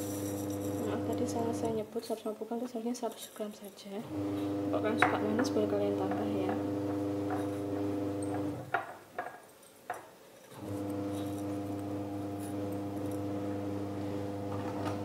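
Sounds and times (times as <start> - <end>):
steady buzzing hum: 4.0 - 8.8, 10.6 - 15.0.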